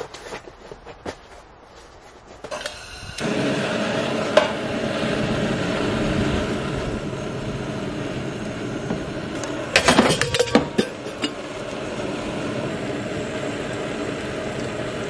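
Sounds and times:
camp stove burner hissing: 2.4s - 15.0s
steel pot clinking on grate: 9.7s - 11.5s.

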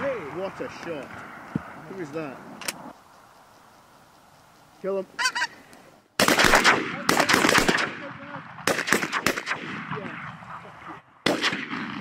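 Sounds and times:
shotgun blasts echoing: 6.2s - 12.0s.

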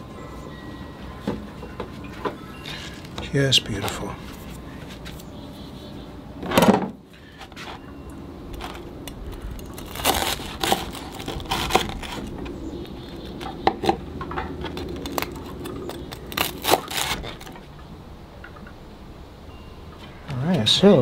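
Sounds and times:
knife crunching through toast: 9.6s - 12.3s, 14.8s - 17.5s.

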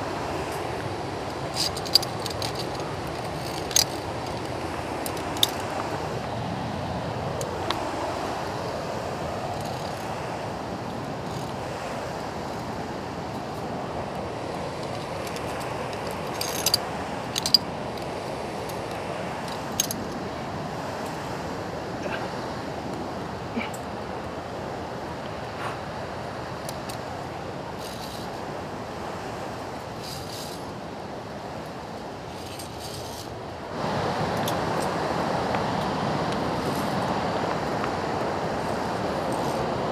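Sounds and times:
waterfall rushing: 0.0s - 32.3s, 33.4s - 39.9s
carabiners clinking on steel: 1.5s - 5.8s, 9.5s - 10.0s, 11.2s - 11.6s, 14.8s - 20.2s, 27.8s - 28.4s, 29.9s - 30.7s, 32.3s - 33.3s.

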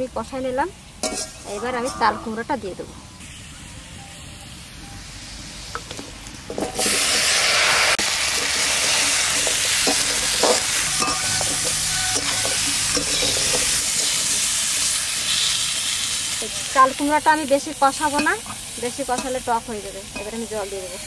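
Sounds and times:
oil sizzling in a wok: 0.0s - 21.0s
metal spatula scraping a wok: 1.0s - 2.4s, 8.2s - 16.0s.

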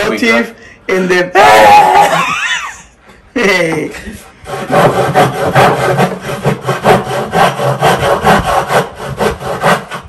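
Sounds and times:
hand saw cutting wood: 4.0s - 10.0s.

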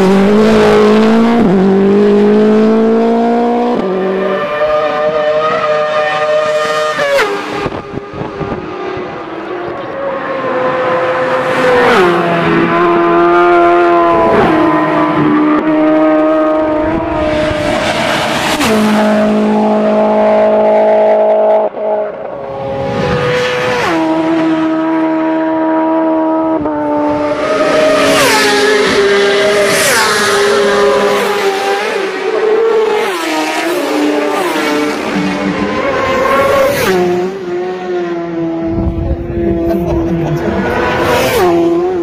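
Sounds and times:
racing motorcycles passing by: 0.0s - 42.0s.

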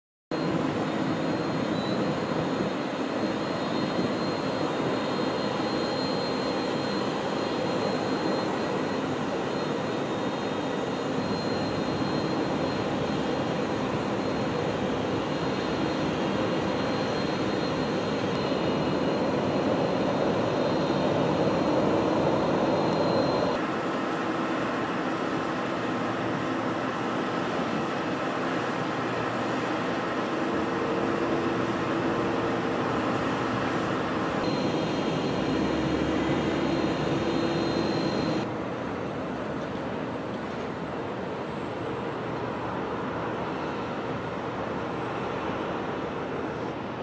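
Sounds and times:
jet engines whining: 0.4s - 47.0s.

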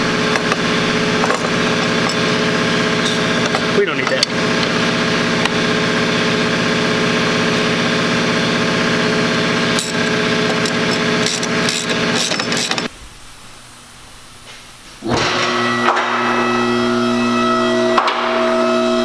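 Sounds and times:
motor humming: 0.0s - 13.0s
metal tools clicking: 0.3s - 2.4s, 3.1s - 4.7s, 9.8s - 12.9s.

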